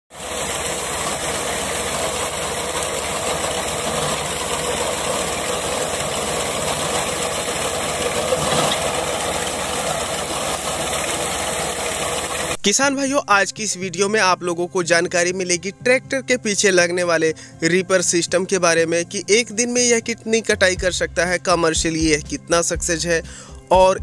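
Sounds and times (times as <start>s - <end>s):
tractor engine and reaper cutting: 0.1s - 12.6s.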